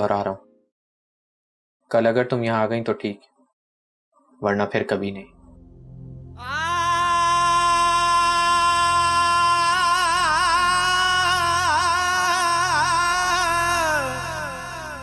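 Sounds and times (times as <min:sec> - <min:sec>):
faint low drone: 0:05.2 - 0:15.0
solo singing voice: 0:06.4 - 0:15.0.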